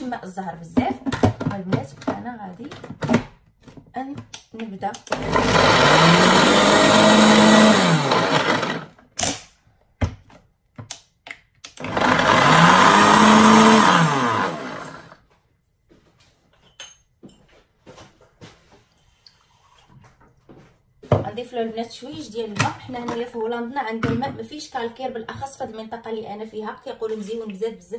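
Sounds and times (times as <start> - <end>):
blender motor chopping: 5.1 - 9.0, 11.7 - 15.2.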